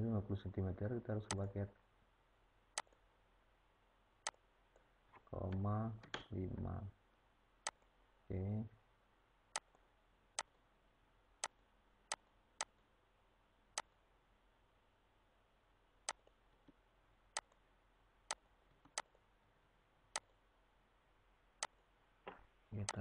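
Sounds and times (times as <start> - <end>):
computer mouse clicking: 16.1 - 16.4, 17.4 - 17.6, 18.3 - 19.2.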